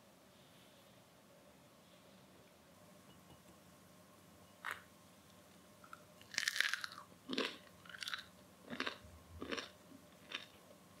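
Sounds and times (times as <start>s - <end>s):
person crunching bread: 5.9s - 10.6s.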